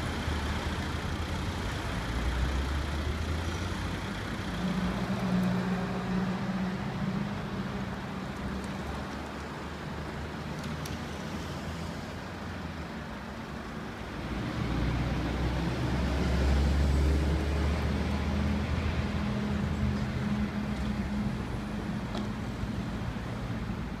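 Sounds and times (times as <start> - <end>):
heavy lorry passing: 0.0 - 9.0, 14.0 - 24.0
motorway traffic hum: 0.0 - 24.0.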